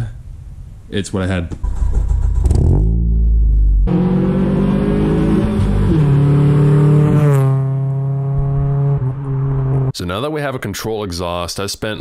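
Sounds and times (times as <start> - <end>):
car engine revving: 1.6 - 10.0.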